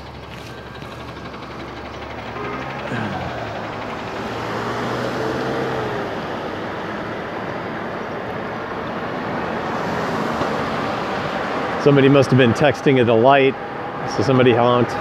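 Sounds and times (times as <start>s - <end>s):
vehicles driving by: 0.0s - 15.0s
car horn honking: 2.2s - 3.8s.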